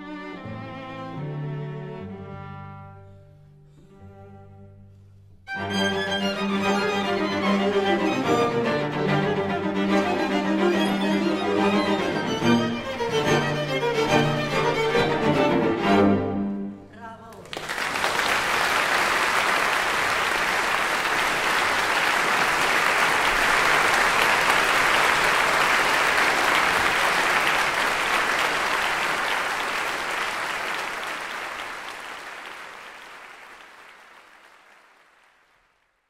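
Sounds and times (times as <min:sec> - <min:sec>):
audience applauding: 0:17.3 - 0:36.0.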